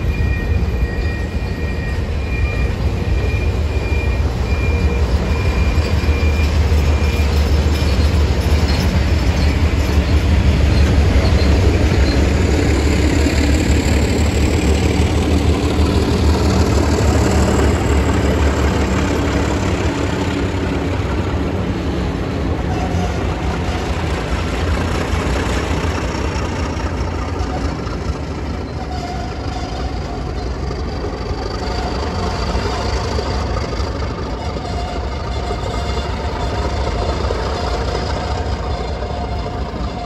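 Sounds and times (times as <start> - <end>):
locomotive engines rumbling: 0.0 - 40.0.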